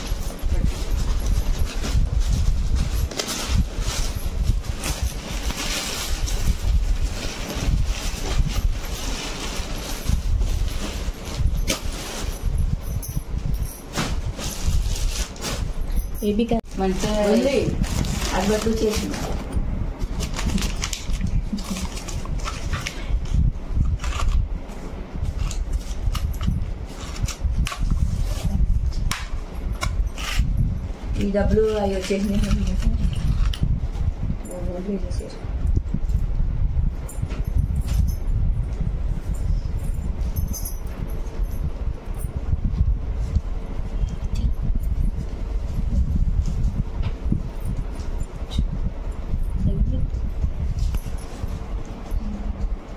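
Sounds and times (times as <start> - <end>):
pulsing low rumble: 0.0 - 52.9
tissue paper crinkling: 20.1 - 23.0.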